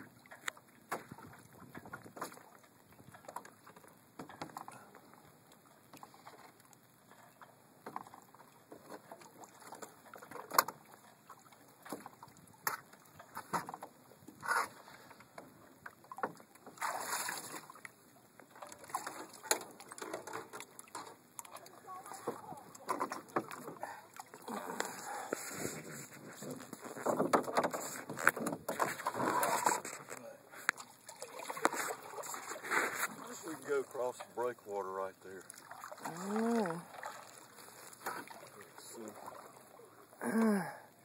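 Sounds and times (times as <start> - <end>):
canoe knocking: 27.0 - 29.9.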